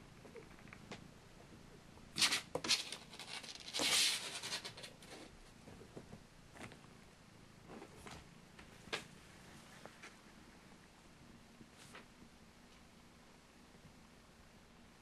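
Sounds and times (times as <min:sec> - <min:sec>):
kitten claws scratching: 0:02.2 - 0:05.3.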